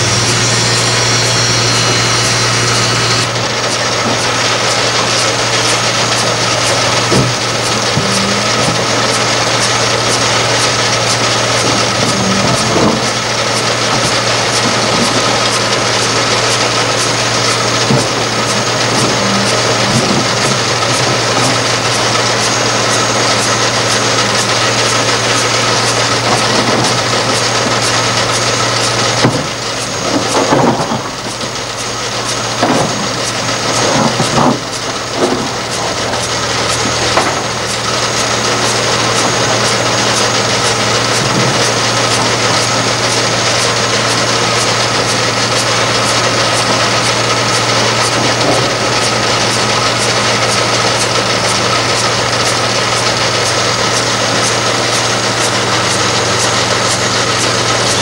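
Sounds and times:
hydraulic excavator running: 0.0 - 58.0.

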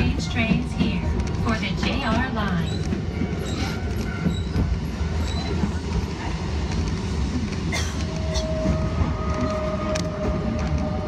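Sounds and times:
tram rumbling on track: 0.0 - 11.0.

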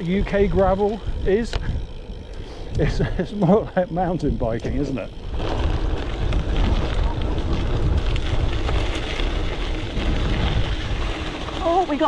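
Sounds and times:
bike rattling: 0.0 - 12.0
continuous low rumble: 0.0 - 12.0
tyres crunching on rocks: 5.2 - 12.0.

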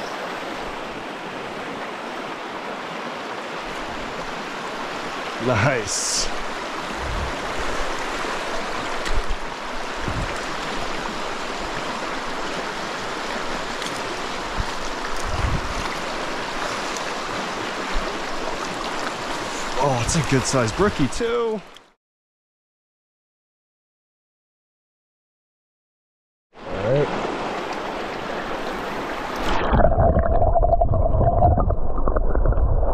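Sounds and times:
stream running over rocks: 0.0 - 22.0, 26.6 - 32.9.

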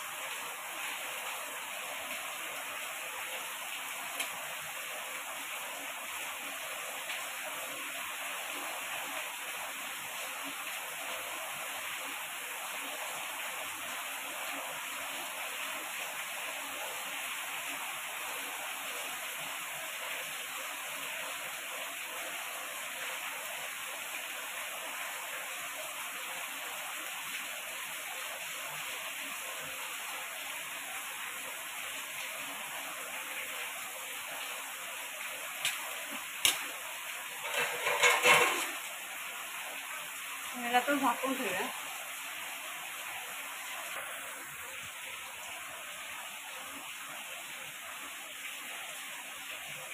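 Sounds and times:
food sizzling on a hot griddle: 35.4 - 39.3.

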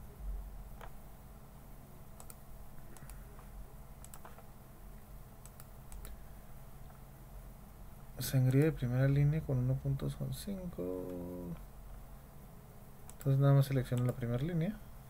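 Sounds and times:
low steady hum: 0.0 - 15.0
mouse and keyboard clicks: 2.2 - 4.5, 5.4 - 6.2.

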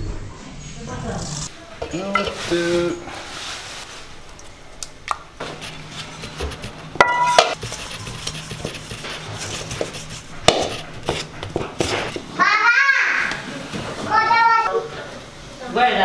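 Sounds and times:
metal bowls clinking together: 1.8 - 3.1, 7.0 - 7.6.

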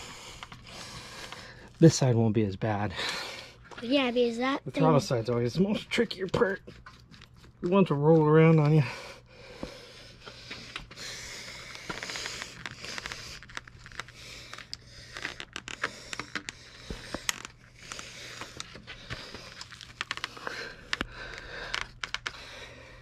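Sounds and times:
rubber grip scraping and rubbing: 11.5 - 22.4.

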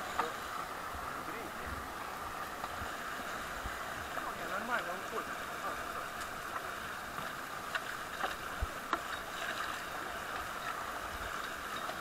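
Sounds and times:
paddles splashing: 0.0 - 12.0
white water rushing: 0.0 - 12.0.

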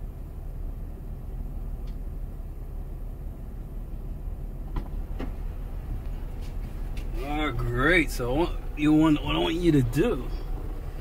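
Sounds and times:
car engine idling: 0.0 - 11.0.

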